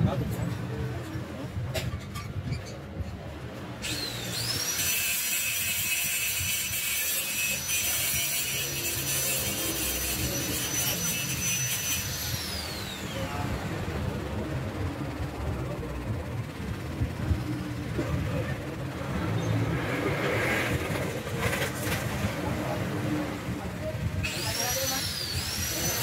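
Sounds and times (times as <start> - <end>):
welding arc hiss and whine: 3.8 - 13.6, 24.2 - 26.0.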